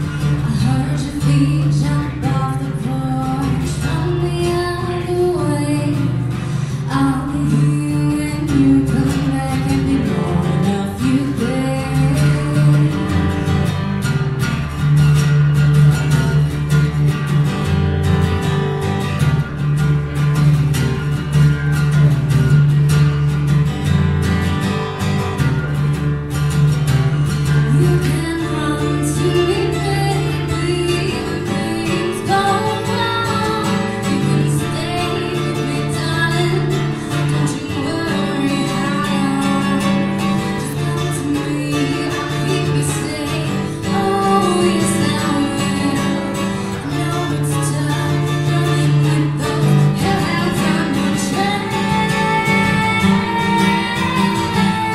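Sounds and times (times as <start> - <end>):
woman singing: 0.0 - 14.2, 27.4 - 54.9
acoustic guitar strummed: 0.0 - 54.9.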